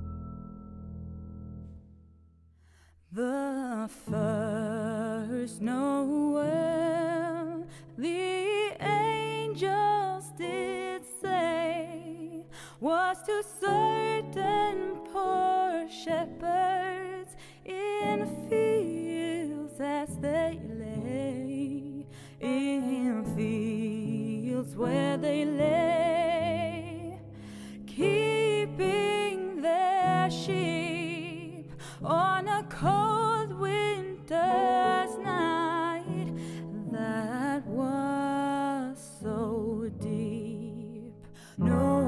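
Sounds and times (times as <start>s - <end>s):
slow christmas song: 0.0s - 42.0s.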